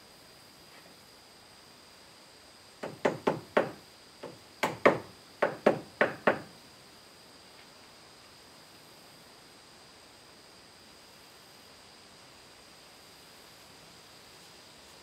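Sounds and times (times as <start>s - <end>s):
hammer tapping wooden blocks: 2.8s - 6.5s.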